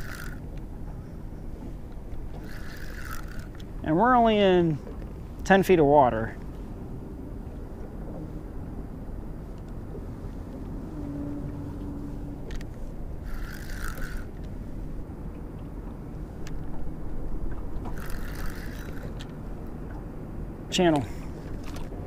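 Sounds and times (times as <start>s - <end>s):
fishing reel whirring: 0.0s - 0.6s, 2.2s - 3.7s, 12.4s - 14.5s, 17.8s - 19.4s.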